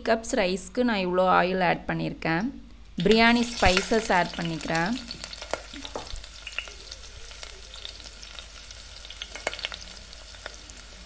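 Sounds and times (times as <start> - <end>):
spices sizzling in hot oil: 3.0 - 11.0.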